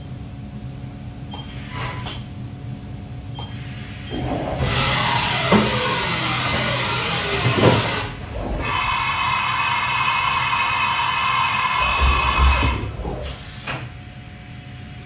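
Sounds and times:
machine whining: 3.4s - 14.8s
machine clunks: 11.8s - 13.9s.

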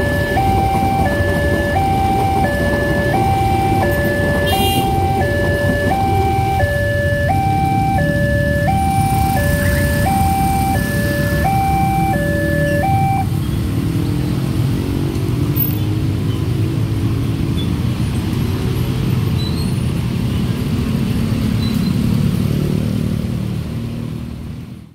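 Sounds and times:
two-tone level-crossing alarm: 0.0s - 13.3s
motorcycle engines pulling away: 0.0s - 19.0s.

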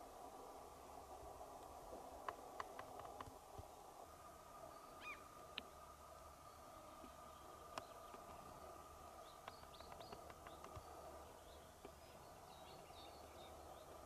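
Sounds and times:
faint clicks: 1.5s - 3.7s, 7.0s - 8.6s, 9.3s - 11.1s
faint high bird chirps: 4.7s - 5.3s.

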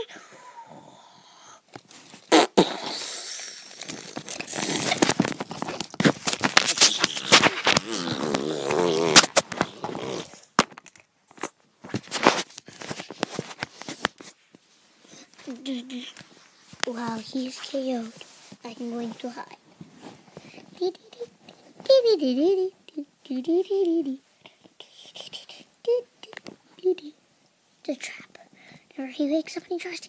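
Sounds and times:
buzzy mouth-made sound: 2.3s - 3.7s, 6.8s - 10.4s.

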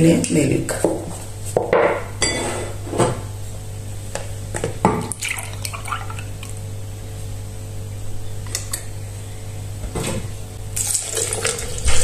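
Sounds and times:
steady low hum: 0.0s - 12.0s
glassware clinking on countertop: 1.7s - 2.5s
liquid sound: 10.8s - 12.0s.

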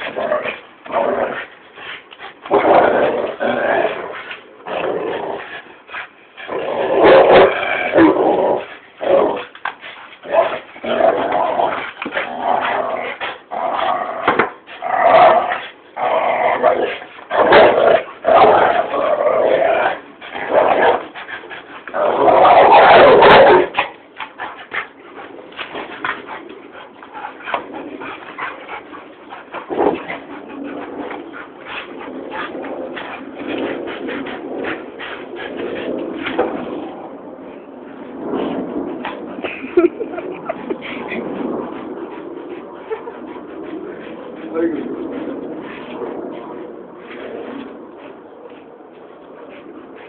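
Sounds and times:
dogs growling: 0.0s - 50.0s.

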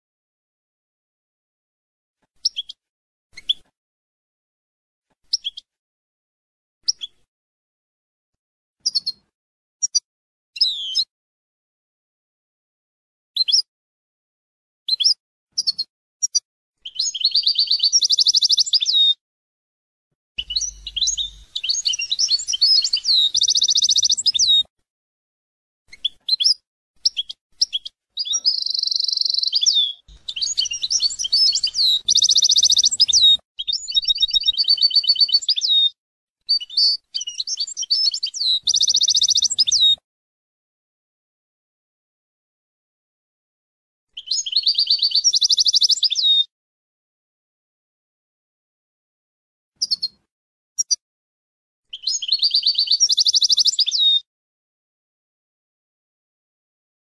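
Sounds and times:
goldfinch singing: 20.4s - 24.6s, 27.1s - 35.9s, 36.5s - 40.0s.

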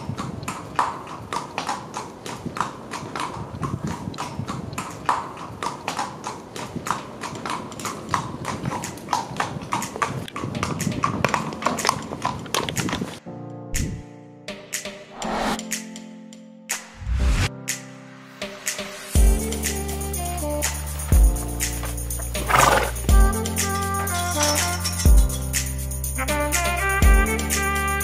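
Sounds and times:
horse hooves clip-clopping: 0.0s - 13.2s, 19.2s - 27.4s.

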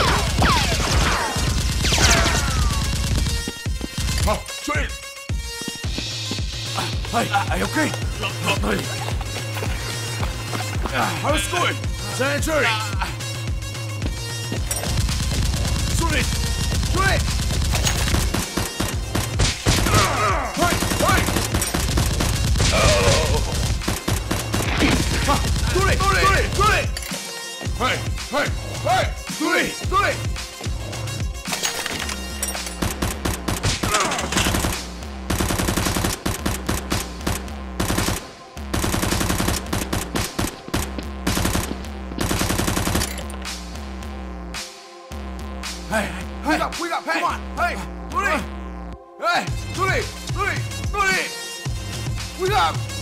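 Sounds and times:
automatic gunfire sound effects: 32.8s - 43.1s.

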